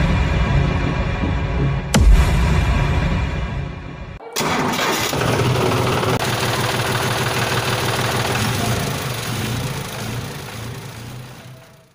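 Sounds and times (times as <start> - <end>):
motor running with low hum: 5.9 - 11.9.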